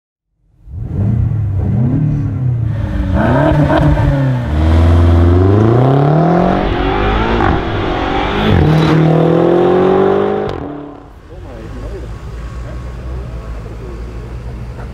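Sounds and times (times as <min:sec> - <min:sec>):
car engine revving and accelerating: 0:00.6 - 0:14.9.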